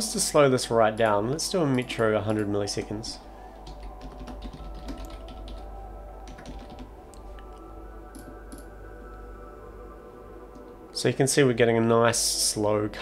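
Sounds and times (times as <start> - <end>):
steady low hum: 0.0 - 13.0
faint drone of held tones: 3.1 - 13.0.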